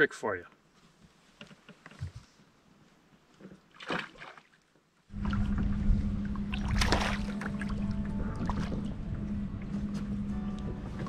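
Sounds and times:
low hum with rumble: 5.1s - 11.0s
fish splashing into water: 6.4s - 8.8s.

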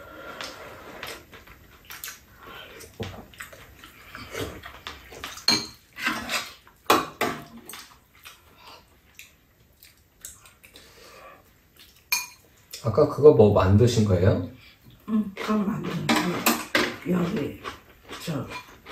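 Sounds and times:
utensils clinking on ceramic bowls: 5.3s - 7.5s, 12.1s - 12.5s, 15.4s - 17.5s.

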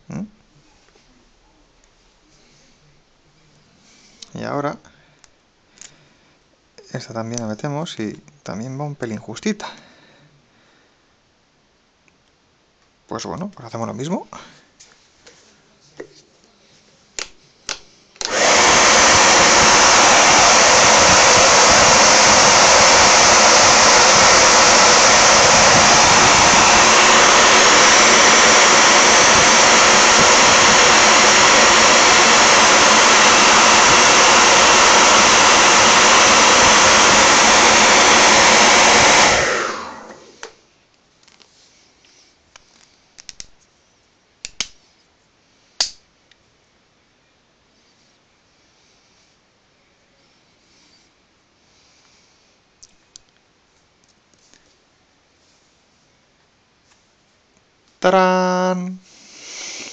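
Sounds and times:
hair dryer blowing: 18.2s - 40.6s, 59.1s - 59.9s.

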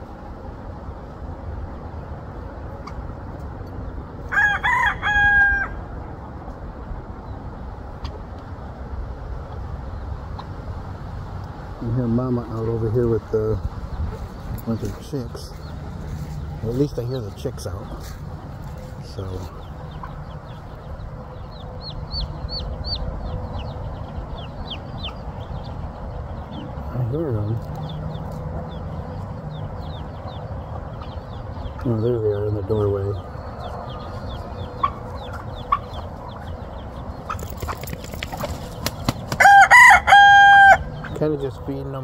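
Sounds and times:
baby chicks peeping: 0.0s - 42.0s
rooster crowing: 4.3s - 5.9s, 39.4s - 41.0s.

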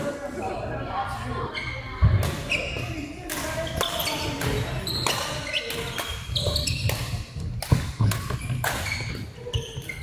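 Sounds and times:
rackets striking shuttlecock: 2.2s - 10.0s
shoes squeaking on court: 3.6s - 10.0s.

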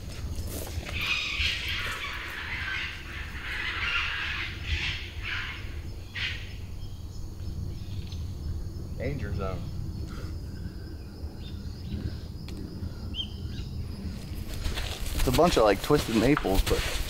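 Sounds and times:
footsteps through weeds and mud: 0.0s - 2.4s, 14.2s - 17.0s
low steady rumble: 2.9s - 15.1s.

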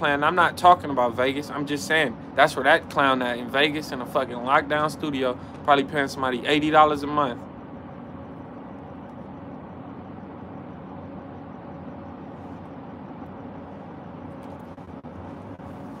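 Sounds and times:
low background rumble: 0.0s - 16.0s.

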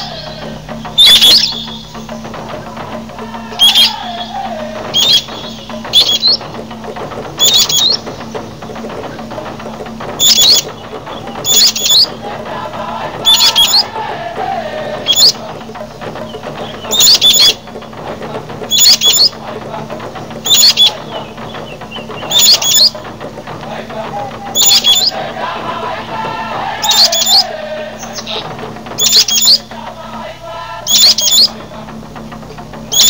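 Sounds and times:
bird repeating high call: 0.0s - 2.2s, 3.3s - 6.8s, 7.4s - 8.3s, 10.2s - 12.2s, 13.2s - 14.0s, 15.0s - 15.4s, 16.2s - 17.6s, 18.7s - 19.4s, 20.4s - 23.0s, 24.4s - 25.3s, 26.8s - 28.4s, 29.0s - 29.7s, 30.9s - 31.6s
faint bird calls: 0.0s - 32.0s
steady low hum: 0.0s - 33.0s.

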